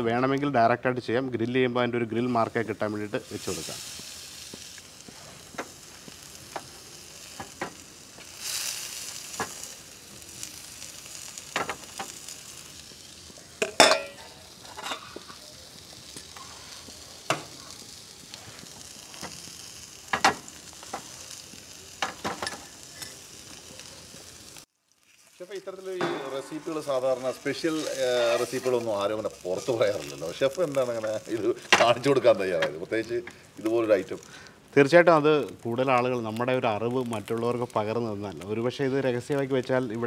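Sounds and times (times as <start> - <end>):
fish sizzling on a griddle: 2.1 - 40.0
sharp pops and crackles: 3.4 - 40.0.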